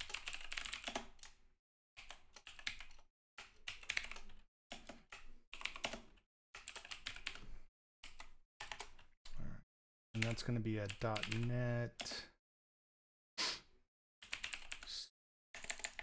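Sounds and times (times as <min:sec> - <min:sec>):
clicky keyboard typing: 0:00.0 - 0:01.4, 0:02.0 - 0:09.1, 0:10.2 - 0:12.1, 0:14.2 - 0:14.9, 0:15.6 - 0:16.0.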